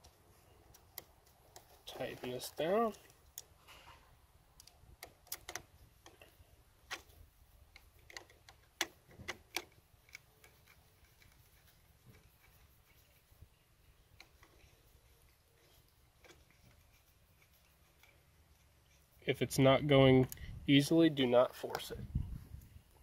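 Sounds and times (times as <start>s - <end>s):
screwdriver clicks and ticks: 4.6s - 6.2s, 7.7s - 11.3s.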